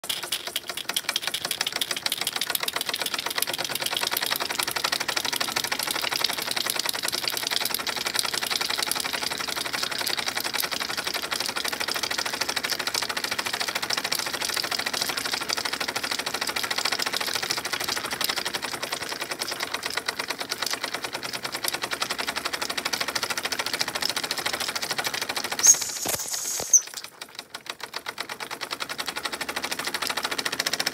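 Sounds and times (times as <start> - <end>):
miniature steam engine running: 0.0 - 30.9.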